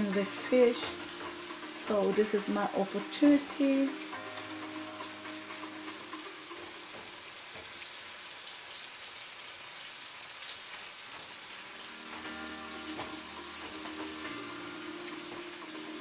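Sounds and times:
sauce sizzling in a frying pan: 0.0 - 16.0.

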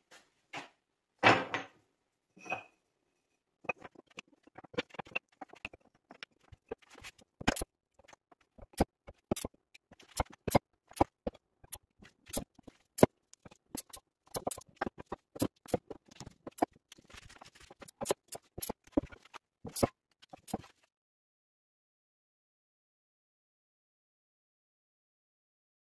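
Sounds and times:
wooden blocks knocking on workbench: 0.6 - 1.8.

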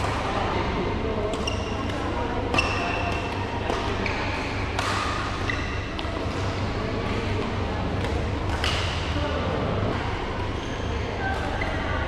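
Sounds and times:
steady low hum: 0.0 - 12.0
rackets striking shuttlecock: 1.3 - 6.5, 8.0 - 9.0.

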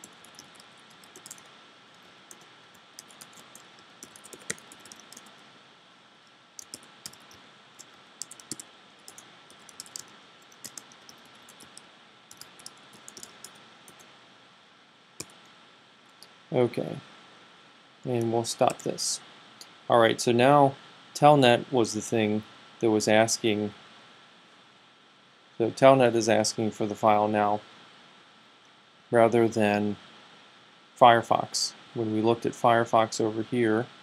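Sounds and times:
typing on computer keyboard: 0.0 - 1.5, 2.3 - 5.3, 6.6 - 14.0
faint high hum: 0.0 - 34.0.

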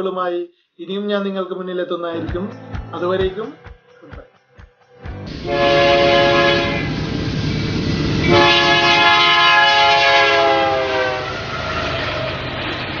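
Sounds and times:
running train: 5.0 - 13.0
train horn blast: 5.3 - 7.2, 8.2 - 12.3.

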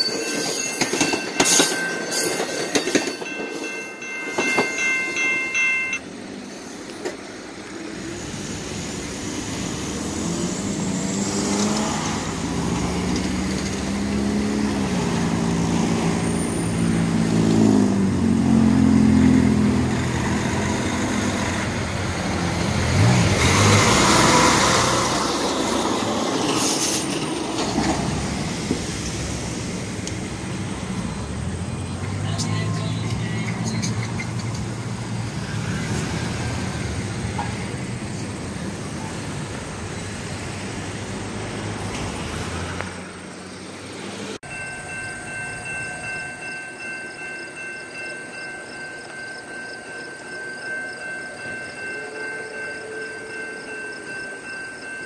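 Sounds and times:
train wheel squeal: 0.0 - 5.1, 35.3 - 37.6
engine pulling away: 7.6 - 32.4
vehicle passing close: 7.8 - 32.4.

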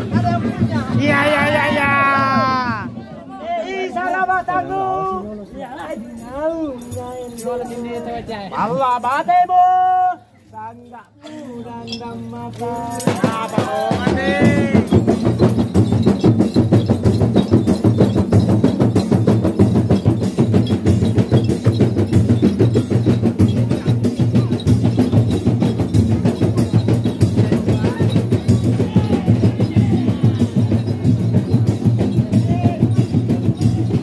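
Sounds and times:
frame drums beaten by hand: 12.5 - 34.0.

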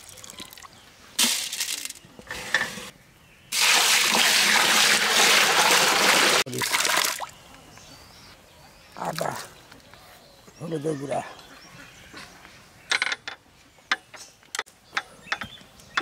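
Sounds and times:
water pouring: 3.5 - 7.3
water splashing: 3.5 - 7.3.

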